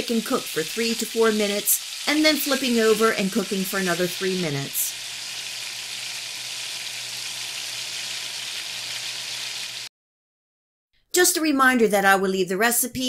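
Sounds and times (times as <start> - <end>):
chicken sizzling in oil: 0.0 - 9.9.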